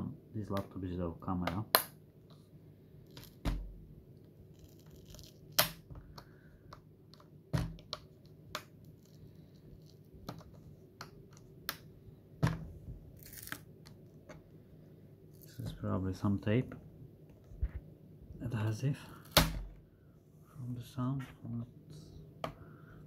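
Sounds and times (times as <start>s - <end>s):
tape peeling rasp: 4.5s - 5.6s.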